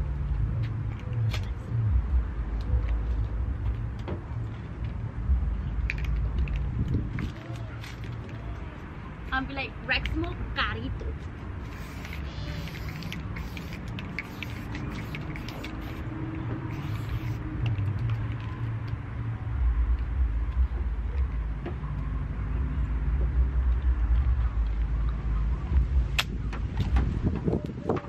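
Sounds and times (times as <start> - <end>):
spray can hissing: 11.6 - 18.1.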